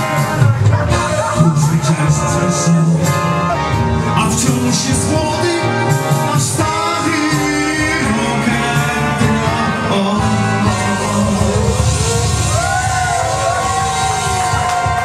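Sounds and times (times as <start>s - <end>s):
electronic keyboard: 0.0s - 15.0s
person singing: 0.0s - 15.0s.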